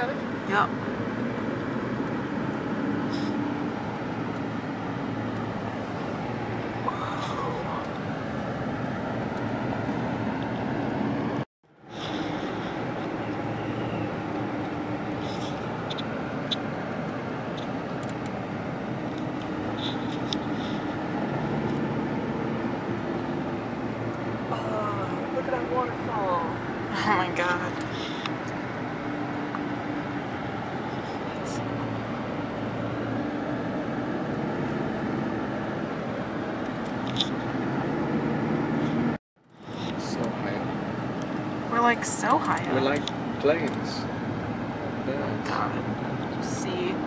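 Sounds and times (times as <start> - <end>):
car road and engine noise: 0.0 - 47.0.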